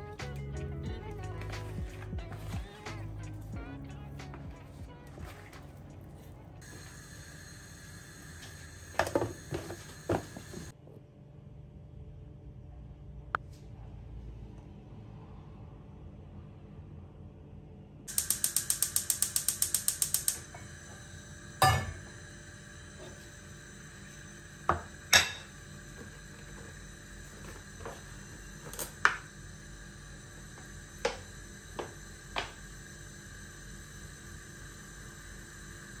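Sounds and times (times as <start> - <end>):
gas hob igniter clicking: 18.1 - 20.6.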